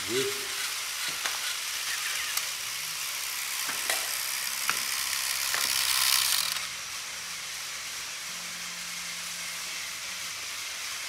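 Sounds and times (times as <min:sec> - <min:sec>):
toy trains whirring: 0:00.0 - 0:11.0.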